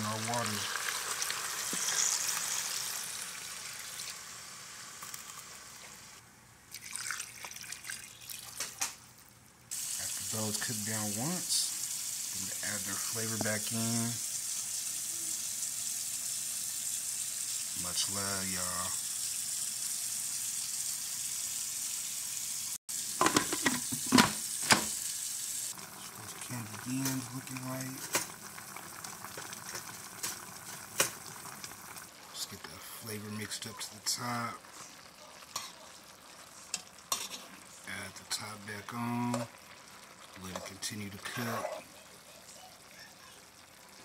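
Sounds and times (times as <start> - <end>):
vegetables sizzling in a pot: 0.0 - 6.2, 8.1 - 44.0
water pouring and splashing: 6.7 - 9.2, 25.7 - 32.1
cookware knocking: 23.2 - 24.4.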